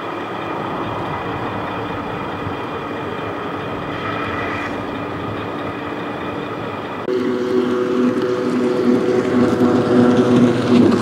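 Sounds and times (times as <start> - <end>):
hiss: 3.9 - 5.0.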